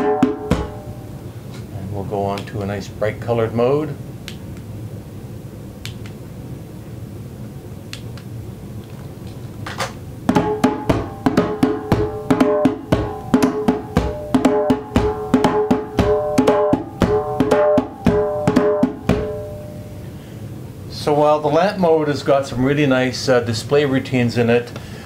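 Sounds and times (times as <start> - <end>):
djembe drumming: 0.0 - 0.9, 10.3 - 19.6.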